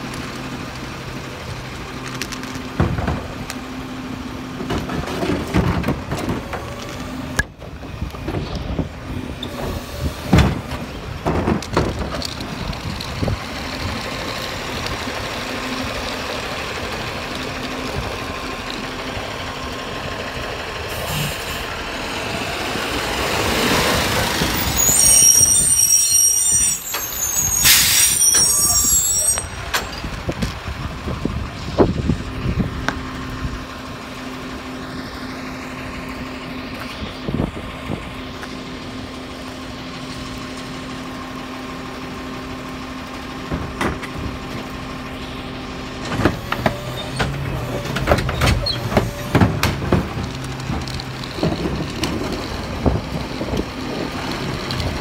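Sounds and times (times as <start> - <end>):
garbage truck engine running: 0.0 - 55.0
air brakes hissing: 20.9 - 21.8, 24.5 - 30.1
high squeal: 24.5 - 30.1.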